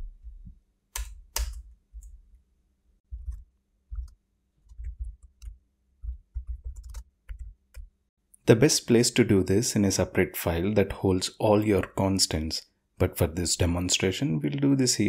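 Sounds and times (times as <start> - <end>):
computer keyboard typing: 3.2 - 7.9.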